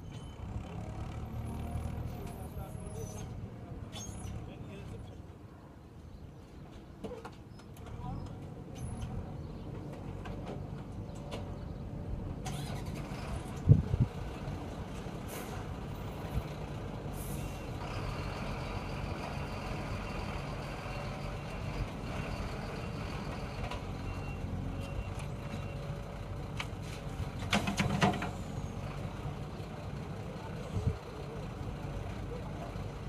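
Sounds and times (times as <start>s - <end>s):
diesel engines running: 7.8s - 33.0s.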